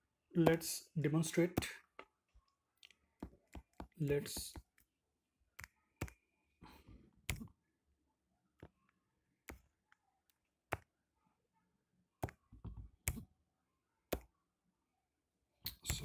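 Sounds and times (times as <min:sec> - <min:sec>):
stylus tapping on touchscreen: 0:03.2 - 0:04.9.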